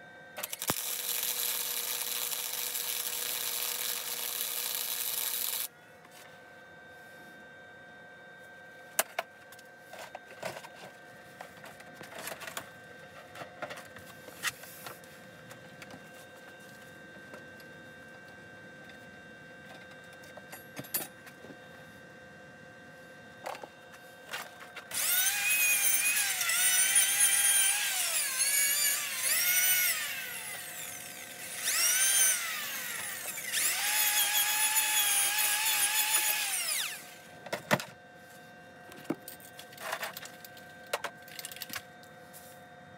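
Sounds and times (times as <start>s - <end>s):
high-pitched power tool motor: 0.4s - 5.7s, 24.9s - 37.3s.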